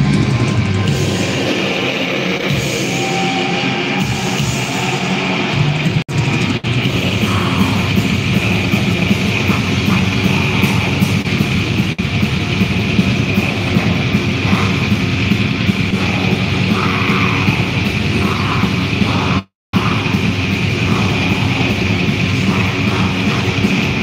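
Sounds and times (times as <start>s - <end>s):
live metal band playing loud: 0.0s - 24.0s.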